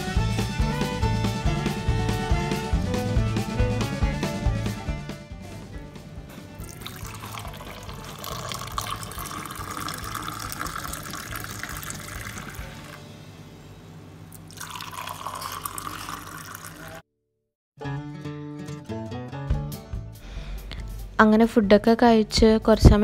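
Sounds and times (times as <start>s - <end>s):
tea pouring into a mug: 6.6s - 13.0s, 14.4s - 17.0s.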